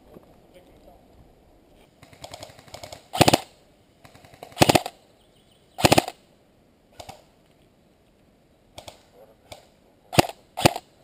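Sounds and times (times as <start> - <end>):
airsoft rifle full-auto bursts: 2.0 - 5.0, 5.8 - 6.2, 10.2 - 10.9
faint gun bursts: 2.0 - 5.0, 5.8 - 6.2, 8.8 - 10.9.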